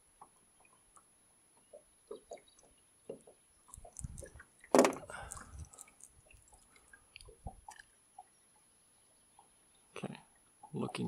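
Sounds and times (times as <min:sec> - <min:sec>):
fishing tackle clicking and knocking: 0:03.7 - 0:06.6.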